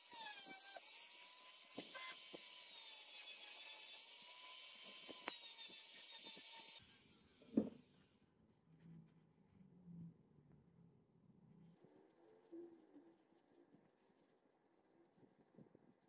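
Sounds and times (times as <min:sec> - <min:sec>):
rotary tool high whine: 0:00.0 - 0:08.0.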